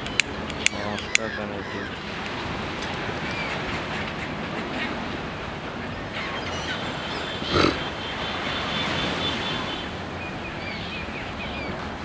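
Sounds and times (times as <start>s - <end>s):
high bird calls: 0.0s - 2.1s, 5.9s - 11.8s.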